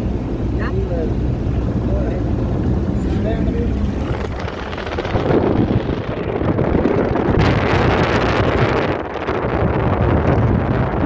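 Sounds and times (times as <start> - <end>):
road and tyre noise: 0.0 - 11.0
wind buffeting microphone: 0.0 - 11.0.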